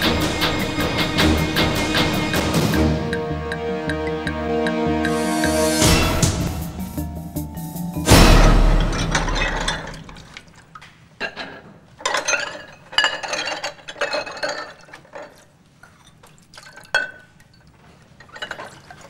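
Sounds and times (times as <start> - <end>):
music sting: 0.0 - 10.2
crockery and utensils clinking: 7.8 - 10.6, 11.2 - 19.0.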